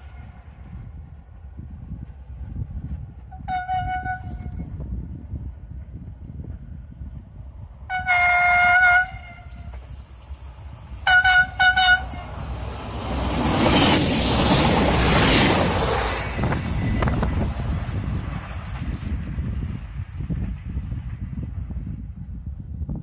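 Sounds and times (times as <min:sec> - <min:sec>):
low train rumble: 0:00.0 - 0:23.0
rush of approaching train: 0:00.0 - 0:23.0
locomotive horn blasts: 0:03.3 - 0:04.7, 0:07.9 - 0:09.8, 0:11.0 - 0:12.4.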